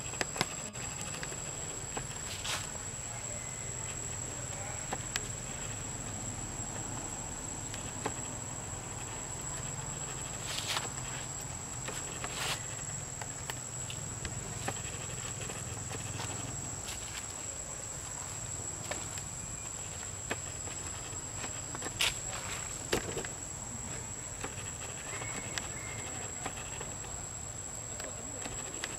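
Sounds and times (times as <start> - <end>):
rustling crunches: 0.0 - 3.2, 4.0 - 27.1
footsteps on leaf litter and stone: 2.0 - 2.8, 10.4 - 24.0.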